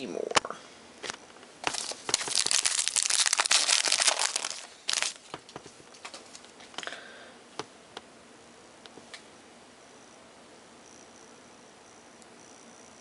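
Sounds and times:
foil wrapper crinkling and tearing: 0:01.6 - 0:05.3
cards clicking and rustling: 0:01.6 - 0:06.5.

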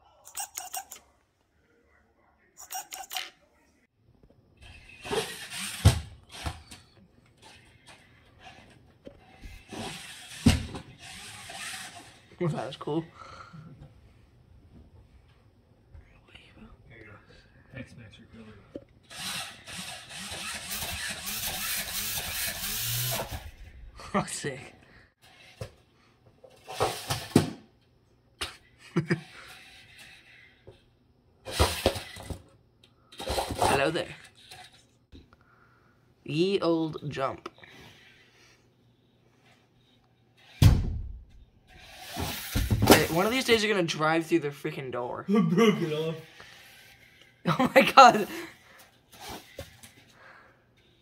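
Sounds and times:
toy truck motor whirring: 0:00.2 - 0:01.0, 0:02.6 - 0:03.3, 0:04.6 - 0:12.4, 0:19.0 - 0:23.8, 0:25.1 - 0:25.9, 0:26.5 - 0:27.3, 0:29.1 - 0:32.4, 0:33.0 - 0:35.1, 0:39.4 - 0:40.6, 0:41.6 - 0:43.6, 0:45.8 - 0:47.4.

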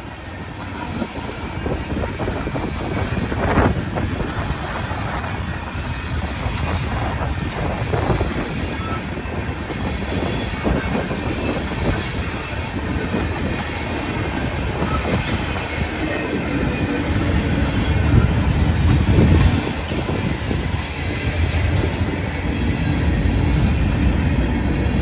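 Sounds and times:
freight train rolling past: 0:00.0 - 0:25.0.

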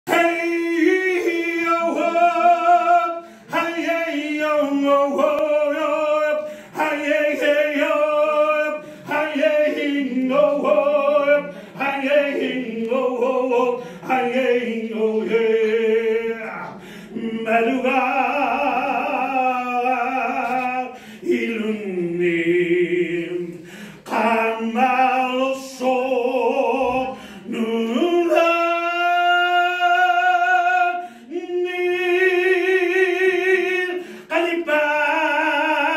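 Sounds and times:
man singing unaccompanied: 0:00.0 - 0:35.9.

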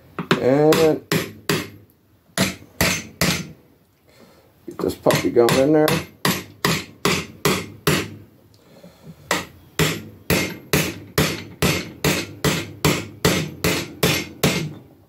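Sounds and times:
hammer striking metal: 0:00.2 - 0:01.8, 0:02.4 - 0:03.5, 0:05.1 - 0:08.2, 0:09.3 - 0:14.8.

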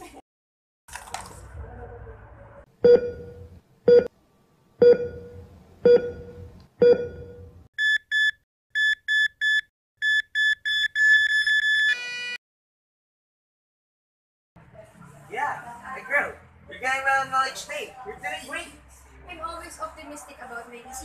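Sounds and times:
heart monitor beeps: 0:02.8 - 0:04.1, 0:04.8 - 0:12.0.

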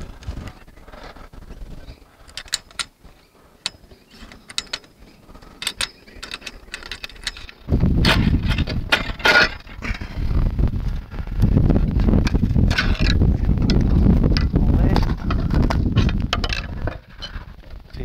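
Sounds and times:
metal clicks and clinks: 0:02.3 - 0:02.9, 0:03.6 - 0:09.7
low rumble on microphone: 0:07.6 - 0:18.0.

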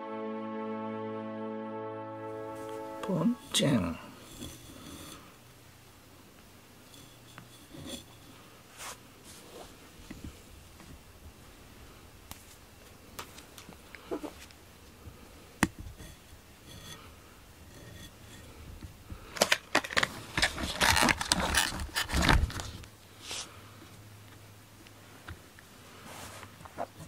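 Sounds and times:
fur rubbing on microphone: 0:07.0 - 0:09.8, 0:26.1 - 0:27.0.

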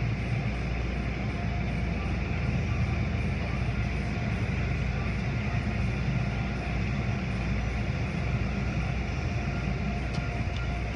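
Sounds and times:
deep mechanical rumble: 0:00.0 - 0:10.9.

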